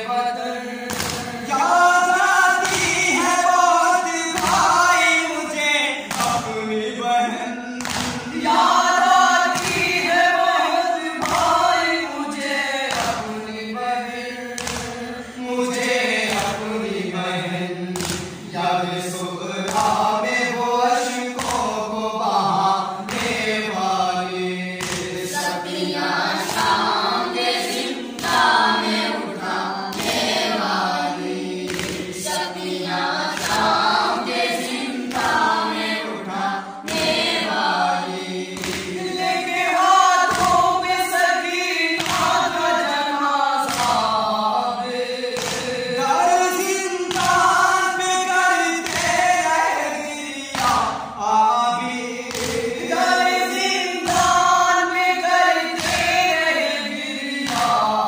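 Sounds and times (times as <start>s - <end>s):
men chanting a lament: 0.0s - 58.0s
chest-beating slaps: 0.8s - 3.4s, 4.3s - 5.2s, 6.0s - 6.6s, 7.8s - 10.5s, 11.1s - 13.4s, 14.5s - 16.8s, 17.9s - 18.6s, 19.6s - 20.4s, 21.2s - 24.0s, 24.7s - 25.6s, 26.2s - 29.0s, 29.9s - 30.5s, 31.5s - 32.5s, 33.3s - 35.9s, 36.8s - 37.5s, 38.1s - 42.6s, 43.6s - 46.0s, 46.6s - 49.9s, 50.5s - 51.1s, 52.2s - 54.6s, 55.6s - 58.0s.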